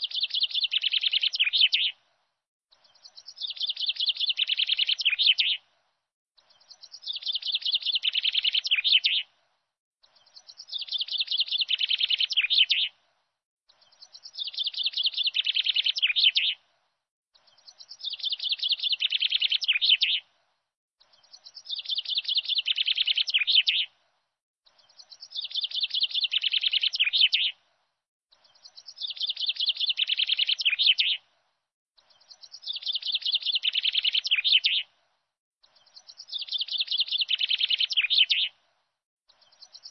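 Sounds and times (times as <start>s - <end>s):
songbird chirping: 0.0s - 39.9s.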